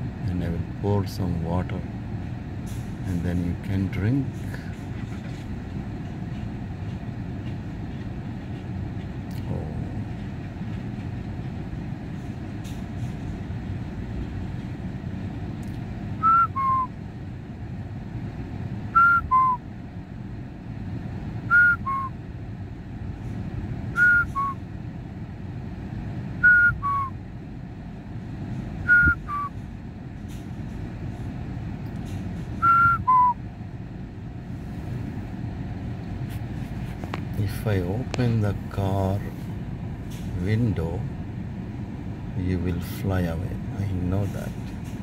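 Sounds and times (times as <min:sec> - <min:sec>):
steady low rumble: 0:00.0 - 0:45.0
person whistling two-note call: 0:16.2 - 0:16.9, 0:19.0 - 0:19.6, 0:21.5 - 0:22.1, 0:24.0 - 0:24.6, 0:26.4 - 0:27.2, 0:28.9 - 0:29.5, 0:32.6 - 0:33.4.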